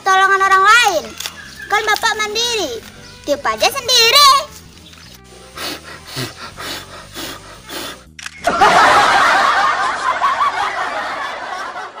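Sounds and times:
light background music: 0.0s - 11.9s
canned audience laughter: 8.4s - 12.0s.

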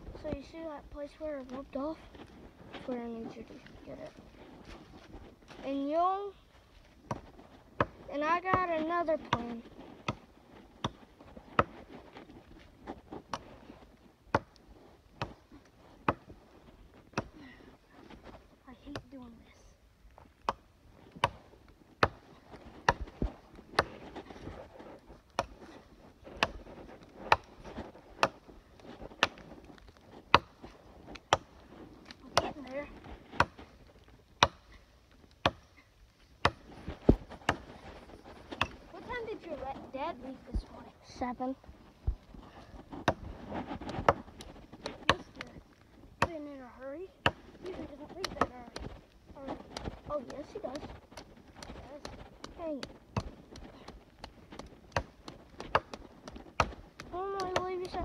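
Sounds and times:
wood chopping strikes: 16.0s - 16.3s, 20.4s - 24.1s, 26.2s - 29.6s, 30.2s - 33.7s, 34.4s - 34.7s, 35.3s - 35.7s, 36.4s - 37.7s, 47.2s - 47.6s, 48.2s - 58.0s.

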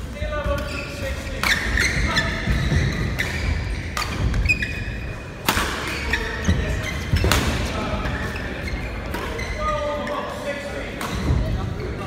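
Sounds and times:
shoes squeaking on court: 0.5s - 10.4s
rackets hitting shuttlecock: 5.4s - 6.3s, 7.1s - 7.7s.

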